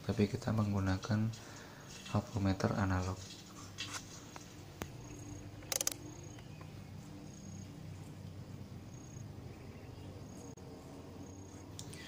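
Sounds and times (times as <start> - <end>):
test leads clicking: 4.8 - 6.7.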